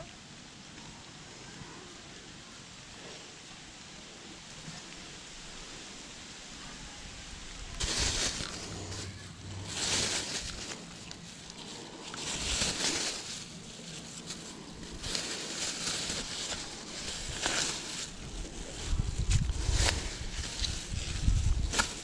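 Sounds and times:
plastic bag crinkling: 7.8s - 22.0s.

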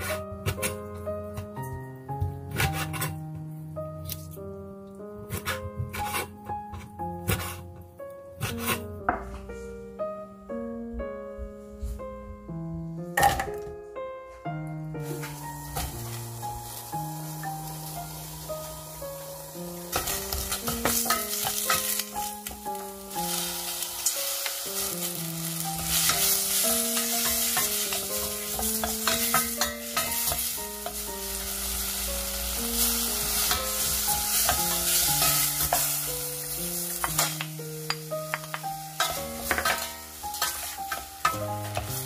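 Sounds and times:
plucked background music: 0.0s - 42.0s
spatula scraping metal pot: 2.6s - 3.2s, 8.4s - 8.9s
vegetables sizzling in oil: 15.0s - 42.0s.

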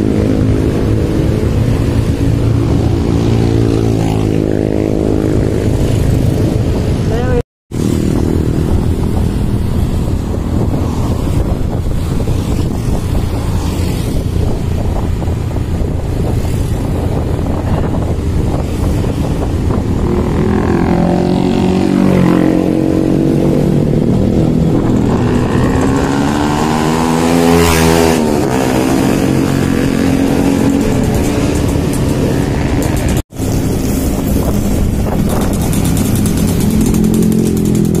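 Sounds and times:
motorcycle engine running: 0.0s - 26.8s, 27.7s - 38.0s
nearby motorbikes and traffic: 0.0s - 38.0s
vehicle passing close: 7.7s - 38.0s.

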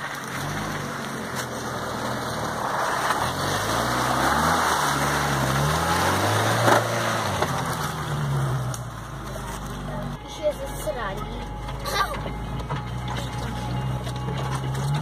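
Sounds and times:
tyres squelching in mud: 0.0s - 10.1s
car engine revving: 0.0s - 15.0s.

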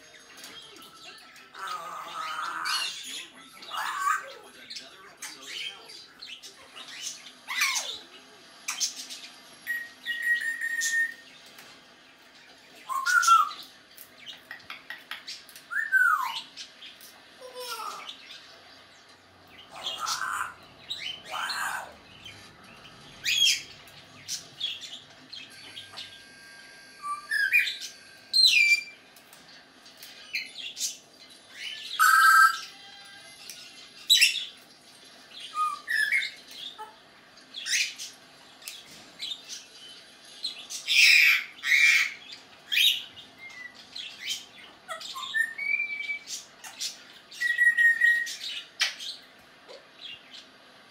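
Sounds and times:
parrot whistles and calls: 9.6s - 11.3s, 12.8s - 13.7s, 15.7s - 16.5s, 25.5s - 29.0s, 31.6s - 33.0s, 35.4s - 37.0s, 40.8s - 49.0s.

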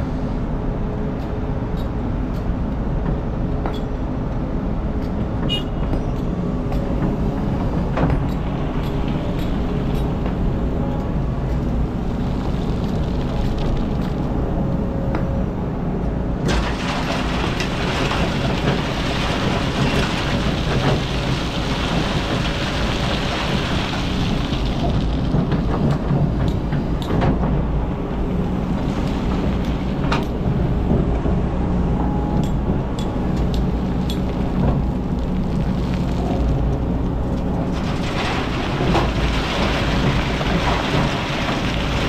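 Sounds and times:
sand and gravel pouring into truck: 16.5s - 25.3s, 37.6s - 42.0s.

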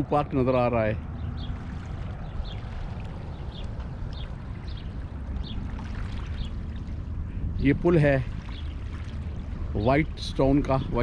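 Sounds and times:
wind on microphone: 1.0s - 11.0s
waves lapping on rocks: 1.6s - 7.0s, 7.8s - 11.0s.

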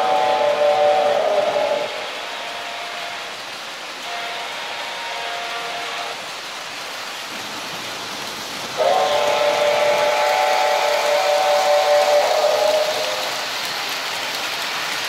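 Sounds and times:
toy train whistle chord: 0.0s - 3.4s, 4.0s - 6.2s, 8.8s - 13.3s
model trains running: 0.0s - 15.0s
steady hiss: 0.0s - 15.0s.

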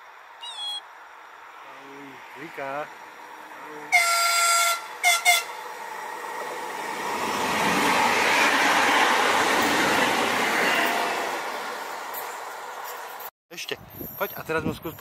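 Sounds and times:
train rolling past: 2.0s - 13.3s
train horn blast: 3.9s - 5.6s.

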